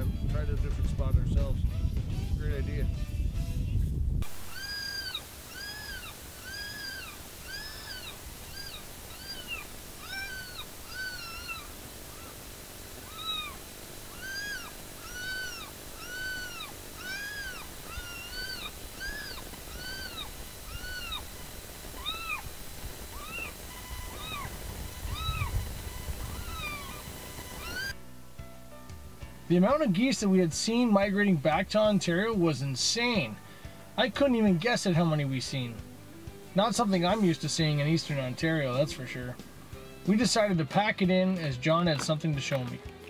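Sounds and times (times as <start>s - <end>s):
electronic animal distress cries: 4.2s - 28.0s.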